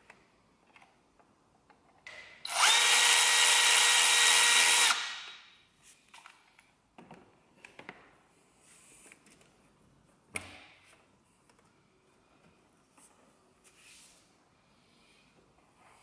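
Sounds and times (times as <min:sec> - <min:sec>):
cordless power driver spinning: 0:02.5 - 0:05.2.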